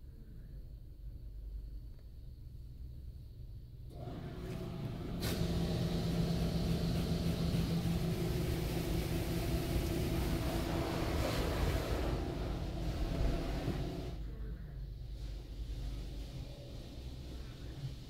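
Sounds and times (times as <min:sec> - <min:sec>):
motor hum: 0:03.9 - 0:14.2
water jets spraying on car: 0:04.0 - 0:14.2.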